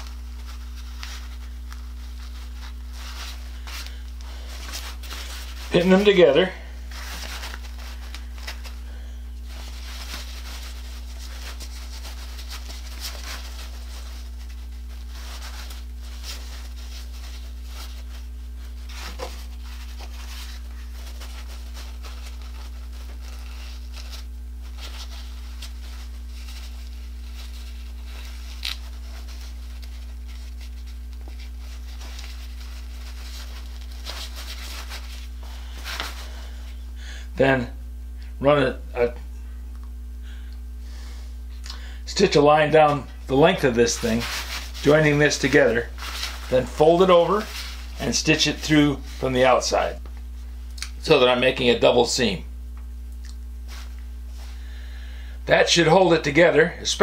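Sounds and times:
fabric bag rustling: 0.0 - 36.9, 42.3 - 50.6
low hum: 0.0 - 51.4.

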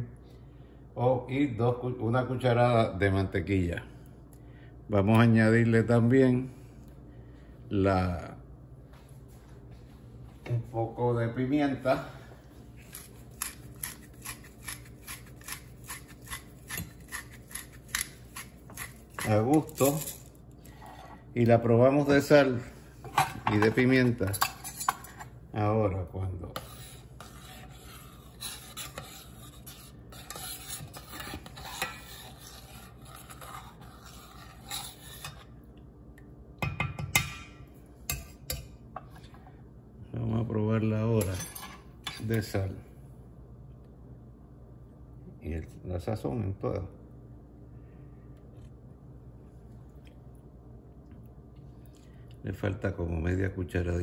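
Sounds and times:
pepper mill grinding: 12.8 - 20.4
metal spoon scraping saucepan: 12.8 - 21.3, 23.0 - 25.3, 26.4 - 35.5.

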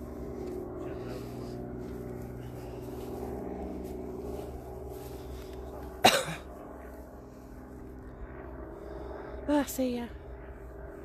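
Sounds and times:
steps swishing through grass: 0.0 - 7.7
low engine drone: 0.0 - 11.0.

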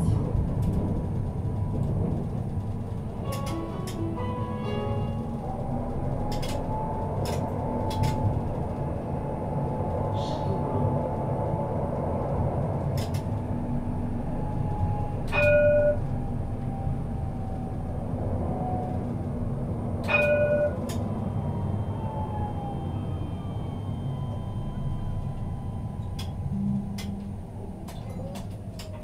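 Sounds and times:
tram rumble: 0.0 - 29.0
loud ringing tones: 20.1 - 27.8
traction motor whine: 20.7 - 28.8.

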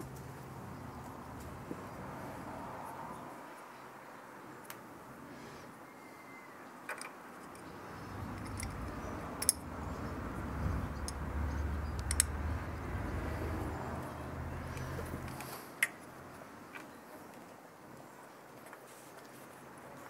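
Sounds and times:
sharp metallic clicks: 6.9 - 10.1, 10.8 - 12.8
low rumble: 8.0 - 15.4.

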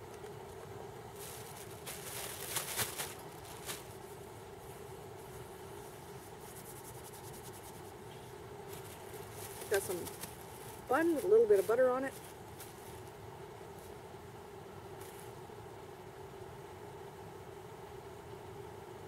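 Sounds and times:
camp stove burning: 0.0 - 6.4, 7.9 - 15.4
plastic bag crinkling: 1.1 - 4.2, 8.6 - 13.2.

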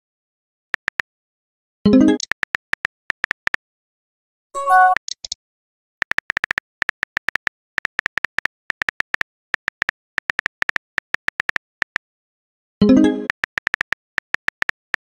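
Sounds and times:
message sent chime: 4.6 - 5.0.

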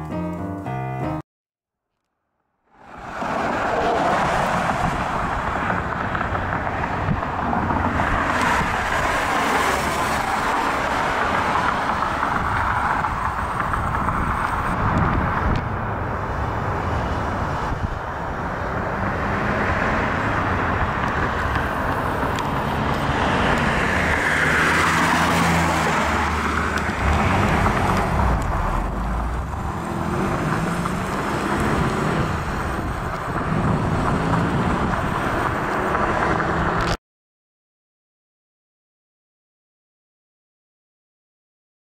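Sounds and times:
road noise rushing: 2.6 - 37.0
vehicle passing by: 2.8 - 37.0
car engine running: 26.8 - 31.0.

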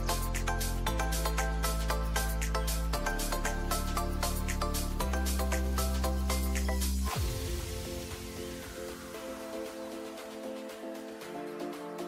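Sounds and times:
deep bass beat: 0.0 - 9.3
light melody: 0.0 - 12.0.

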